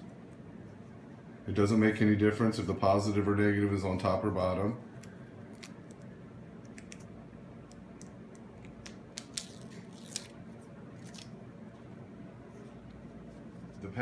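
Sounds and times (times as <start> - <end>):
low steady hum: 0.0 - 14.0
adhesive patch crinkling: 4.9 - 11.4.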